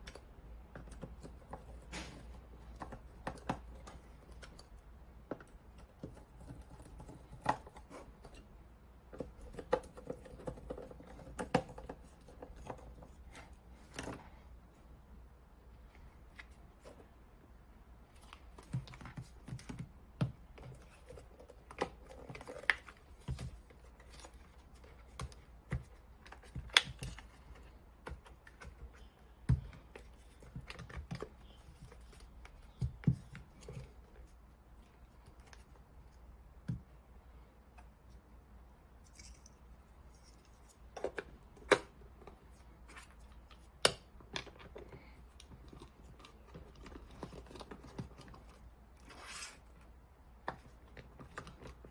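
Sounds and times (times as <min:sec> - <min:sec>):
plastic parts clicking and knocking: 0:00.0 - 0:14.3, 0:18.3 - 0:34.3, 0:40.8 - 0:49.0.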